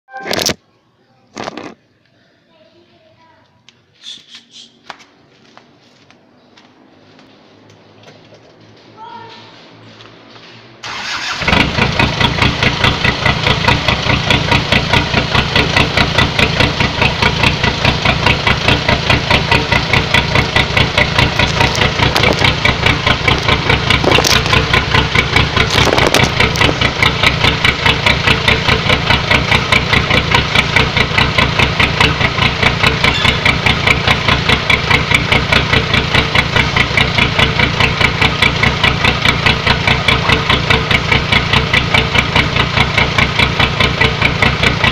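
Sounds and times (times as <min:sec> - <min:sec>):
pickup engine starting and idling: 0:10.8 - 0:44.9.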